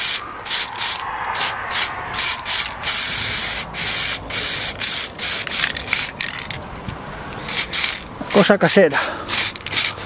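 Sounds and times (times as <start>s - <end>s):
aerosol can spraying: 0.0s - 6.1s, 9.3s - 10.0s.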